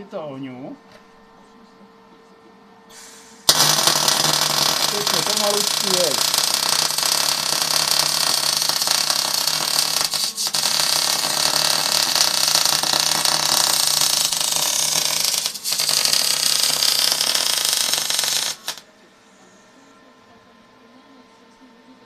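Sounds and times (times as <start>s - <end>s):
welding arc sizzling: 3.5s - 18.8s.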